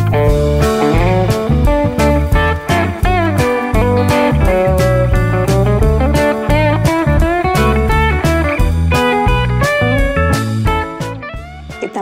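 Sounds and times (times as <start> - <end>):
bass line: 0.0 - 12.0
guitar melody with bending notes: 0.0 - 12.0.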